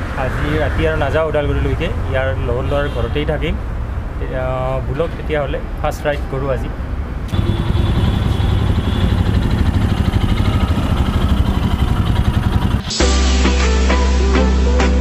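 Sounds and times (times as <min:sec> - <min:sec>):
motorcycle engine running: 0:07.3 - 0:13.0
background music: 0:12.8 - 0:15.0.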